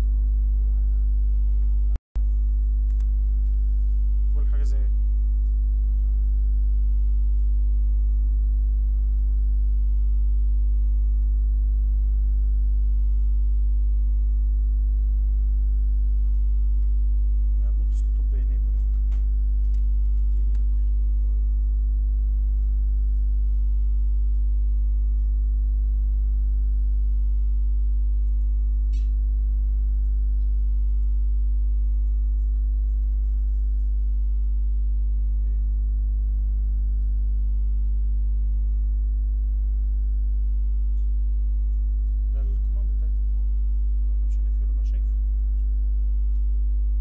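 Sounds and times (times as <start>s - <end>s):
electrical mains hum: 0.0s - 47.0s.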